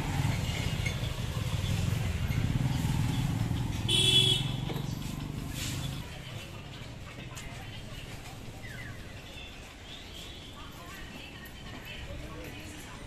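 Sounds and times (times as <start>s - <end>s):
motorcycle passing by: 0.0s - 7.2s.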